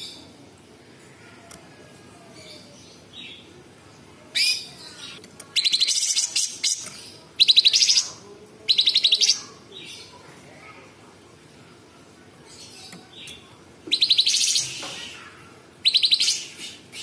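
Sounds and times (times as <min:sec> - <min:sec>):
songbird singing: 0:04.4 - 0:10.3, 0:12.4 - 0:17.0
rapid rattling bird trills: 0:13.9 - 0:17.0.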